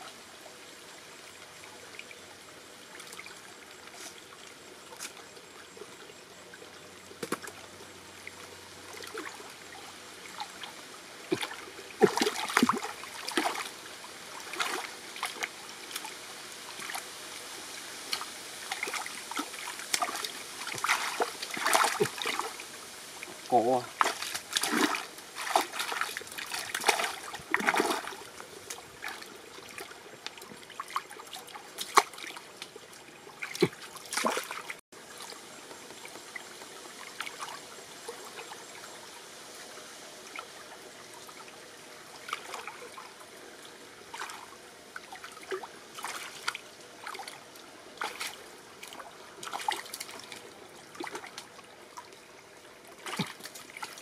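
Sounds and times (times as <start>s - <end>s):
stream trickling: 0.0s - 54.0s
hands and feet splashing in water: 11.3s - 13.7s, 14.4s - 16.2s, 18.1s - 22.6s, 23.9s - 36.4s, 42.2s - 43.1s, 44.1s - 52.0s, 52.9s - 54.0s.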